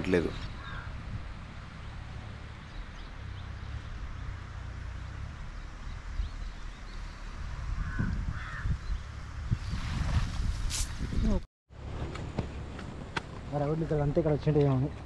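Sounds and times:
crow cawing: 0:00.6 - 0:01.0, 0:07.8 - 0:08.7
wind rumbling on microphone: 0:02.8 - 0:13.6.

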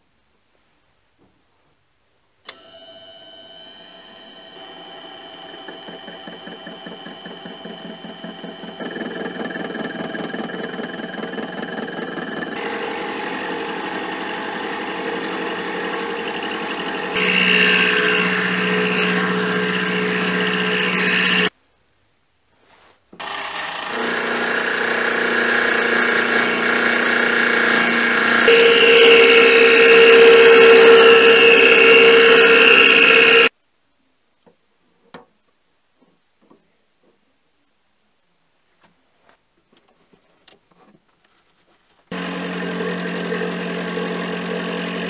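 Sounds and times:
endmill ringing cutting metal: 0:03.6 - 0:21.5, 0:27.5 - 0:33.5.

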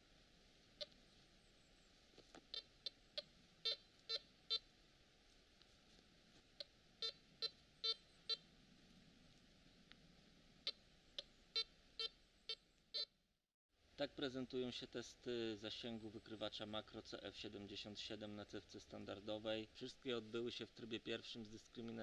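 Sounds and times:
metal detector beeps: 0:07.0 - 0:08.4.

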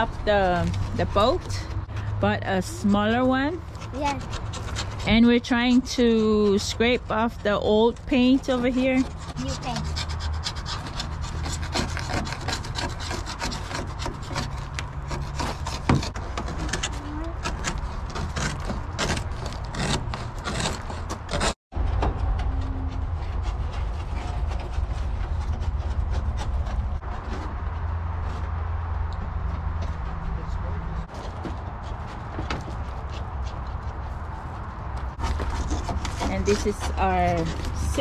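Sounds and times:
scraper scratching paint: 0:02.2 - 0:21.6, 0:31.7 - 0:38.0.

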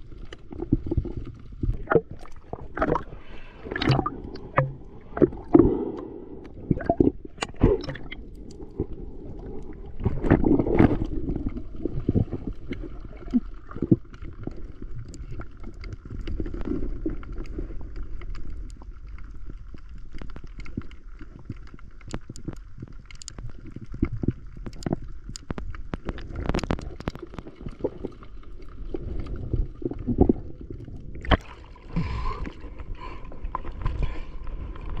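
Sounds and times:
water splashing: 0:00.0 - 0:14.3, 0:26.0 - 0:35.0
underwater water rush and gurgling: 0:00.0 - 0:35.0
sharp underwater clicks: 0:01.7 - 0:08.9, 0:18.2 - 0:28.2.

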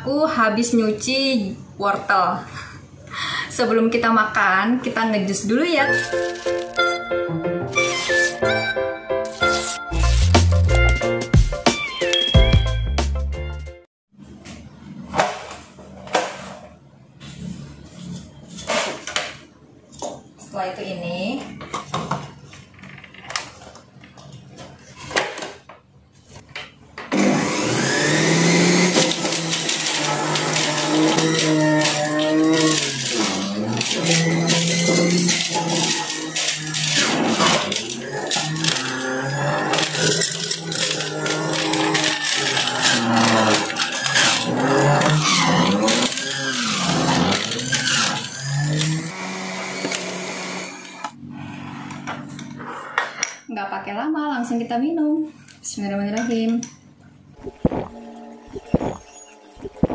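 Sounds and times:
electric juicer motor running: 0:27.1 - 0:52.1, 0:57.6 - 0:59.9.

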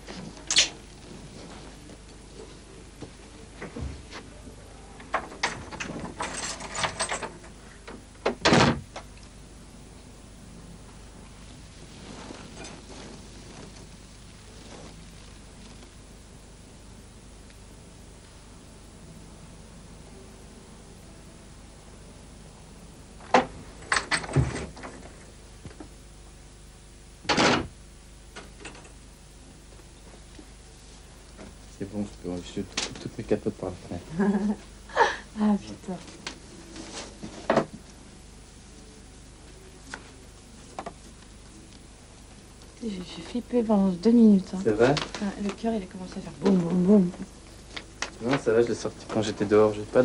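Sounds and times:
wardrobe door bang: 0:08.4 - 0:08.8.

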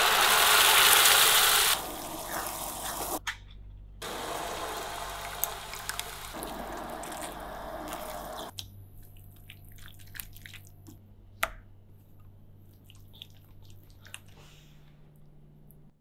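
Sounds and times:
liquid hissing in pan: 0:00.0 - 0:03.2.

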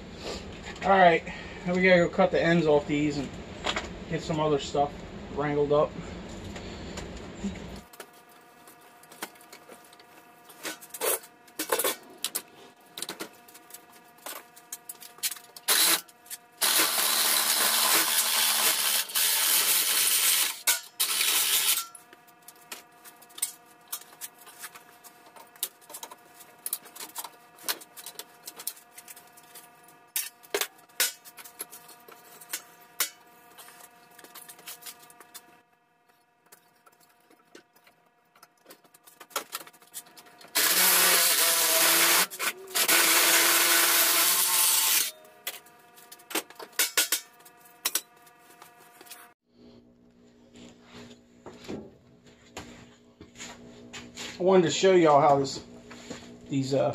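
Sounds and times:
miter saw cutting metal: 0:15.6 - 0:22.0, 0:40.5 - 0:45.2.

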